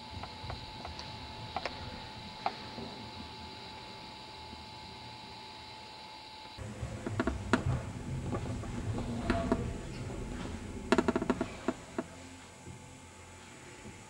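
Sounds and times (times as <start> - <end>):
paint bottles and brushes knocking: 6.6 - 12.2.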